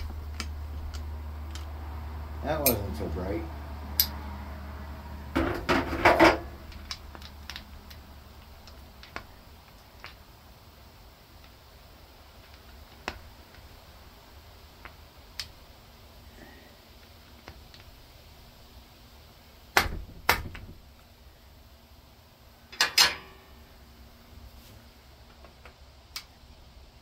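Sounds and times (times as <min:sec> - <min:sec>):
light metallic clinks and taps: 0:03.9 - 0:04.2.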